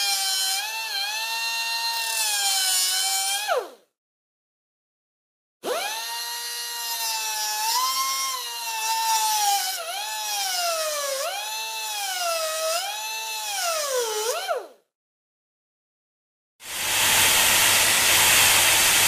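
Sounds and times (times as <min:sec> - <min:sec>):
electric drill motor whining: 0:16.7 - 0:19.0.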